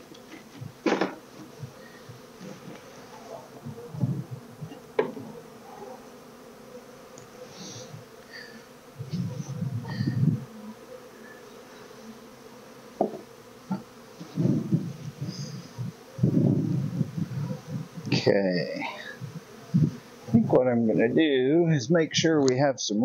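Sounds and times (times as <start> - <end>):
honeybees buzzing: 0.0 - 22.3
wooden hive frames knocking: 0.3 - 5.6, 12.9 - 14.9.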